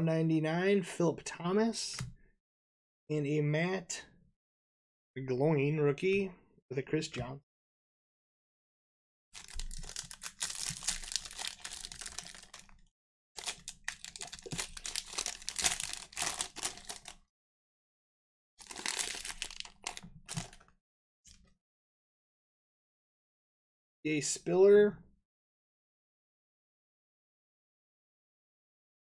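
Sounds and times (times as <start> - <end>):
plastic wrappers crinkling and tearing: 9.4 - 12.8, 13.4 - 17.2, 18.6 - 20.6.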